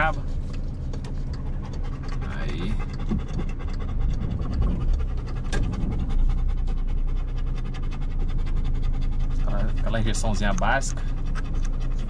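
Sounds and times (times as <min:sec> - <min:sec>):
car engine and road rumble: 0:00.0 - 0:12.0
dog panting rapidly: 0:00.0 - 0:12.0.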